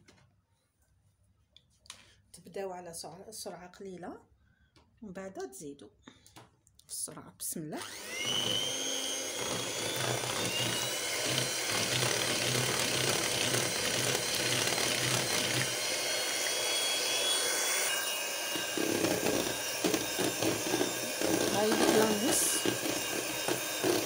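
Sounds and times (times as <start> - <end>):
beaters churning cream: 7.8 - 24.0
electric hand mixer motor whine: 7.8 - 24.0.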